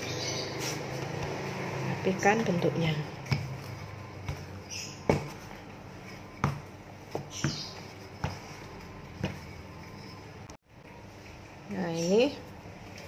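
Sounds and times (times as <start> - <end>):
hands patting dough: 3.1 - 10.5.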